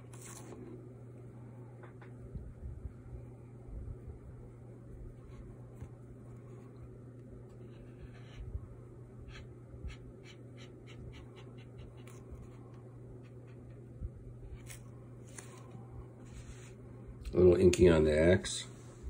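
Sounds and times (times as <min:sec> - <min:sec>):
faint low hum: 0:00.0 - 0:19.0
marker scratching on paper: 0:07.6 - 0:08.5, 0:09.2 - 0:12.6.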